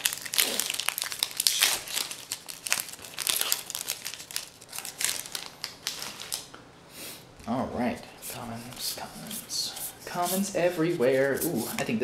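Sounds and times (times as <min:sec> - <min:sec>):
foil wrapper crinkling and tearing: 0:00.0 - 0:06.5.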